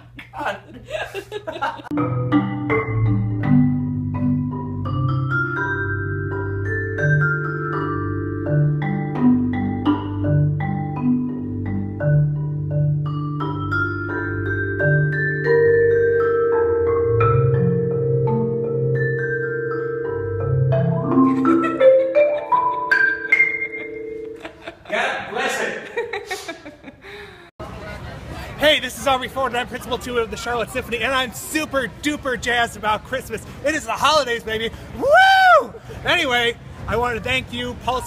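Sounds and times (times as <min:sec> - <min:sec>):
marimba played with mallets: 0:01.9 - 0:24.7.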